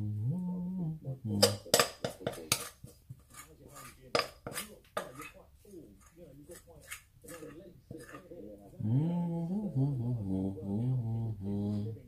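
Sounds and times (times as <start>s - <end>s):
spoon scraping glass bowl: 1.4s - 8.4s.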